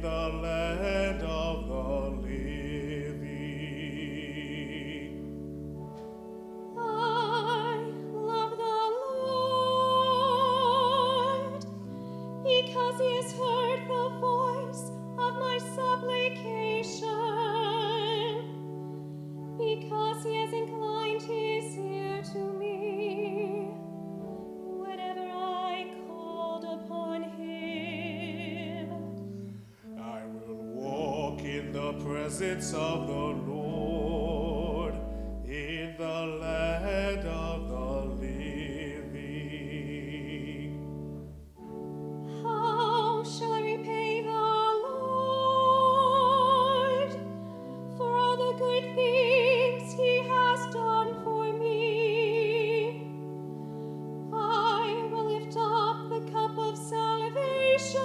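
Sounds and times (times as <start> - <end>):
man singing with vibrato: 0.0 - 5.4, 29.9 - 41.0
held accompaniment chords: 0.0 - 58.0
woman singing with vibrato: 6.8 - 11.7, 12.4 - 18.6, 19.6 - 23.8, 24.7 - 29.1, 42.3 - 53.2, 54.2 - 58.0.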